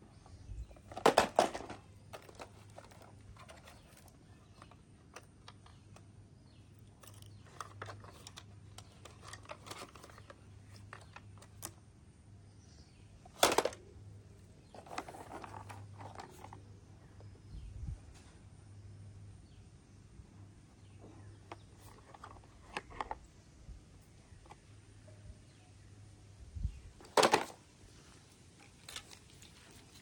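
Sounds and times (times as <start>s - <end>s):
plastic toys clicking and rustling: 0.6s - 11.8s, 13.3s - 14.0s, 14.6s - 16.7s, 21.4s - 23.3s, 27.0s - 27.6s, 28.5s - 30.0s.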